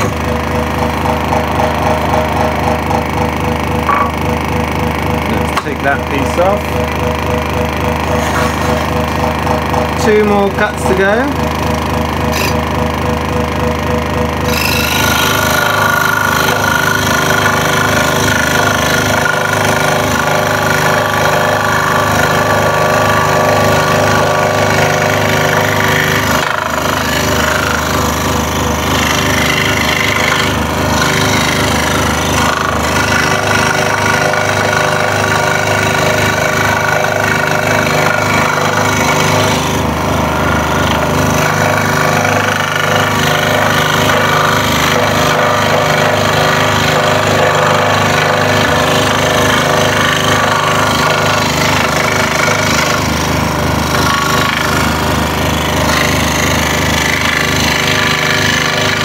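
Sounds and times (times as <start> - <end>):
scroll saw cutting wood: 0.0 - 59.0.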